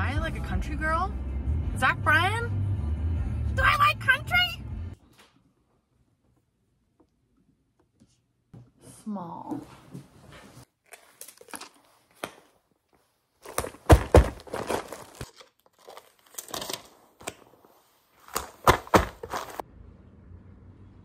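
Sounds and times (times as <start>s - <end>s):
packaging tearing and crinkling: 10.9s - 11.9s, 13.4s - 17.5s, 18.2s - 19.6s.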